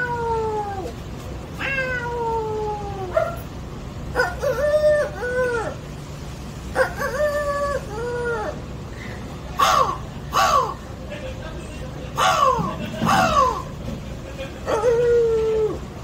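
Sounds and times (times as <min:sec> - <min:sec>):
man imitating cat meows: 0:01.6 - 0:03.1.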